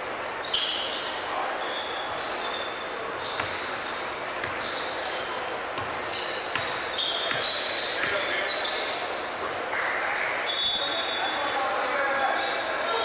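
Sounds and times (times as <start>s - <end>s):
gym hall noise: 0.0s - 13.0s
sneakers squeaking: 0.4s - 13.0s
basketball bouncing on hardwood: 4.4s - 4.7s, 5.8s - 8.2s.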